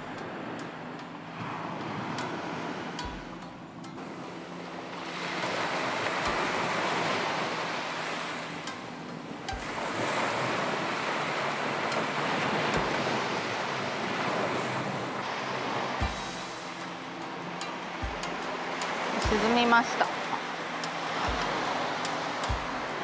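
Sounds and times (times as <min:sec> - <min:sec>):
ocean waves on sandy beach: 0:00.0 - 0:23.0.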